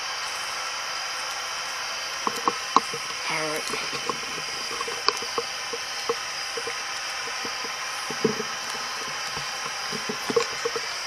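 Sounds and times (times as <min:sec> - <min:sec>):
static hiss: 0:00.0 - 0:11.0
faint clicks and taps: 0:02.2 - 0:11.0.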